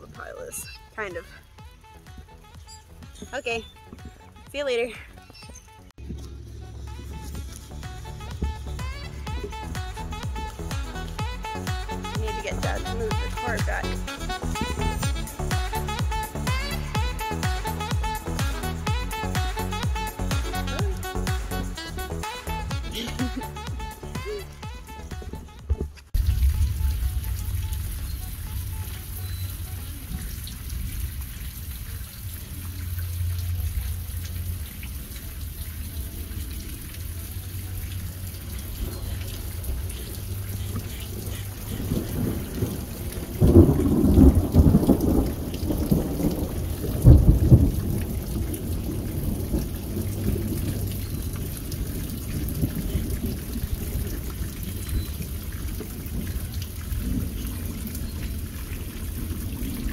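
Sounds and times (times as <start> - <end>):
steady rain falling: 0.0 - 59.9
thunder rumbling: 26.2 - 35.5, 38.4 - 59.9.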